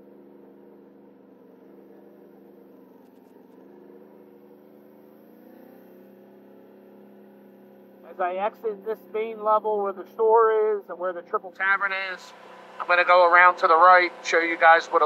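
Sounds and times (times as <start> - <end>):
atv engine running: 0.0 - 15.0.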